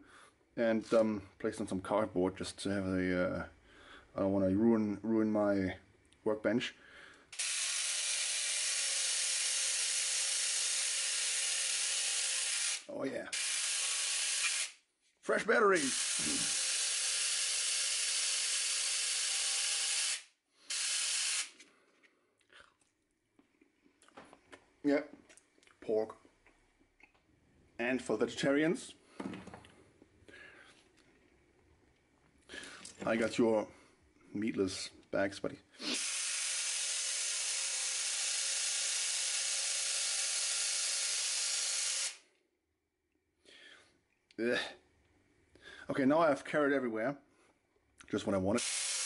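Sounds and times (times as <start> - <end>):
electric chainsaw knife buzzing: 7.4 - 14.8, 15.8 - 21.6, 35.9 - 42.2, 48.6 - 49.0.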